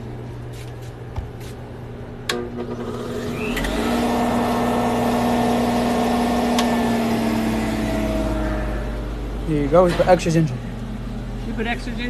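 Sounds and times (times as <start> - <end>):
juicer motor humming: 2.3 - 9.7.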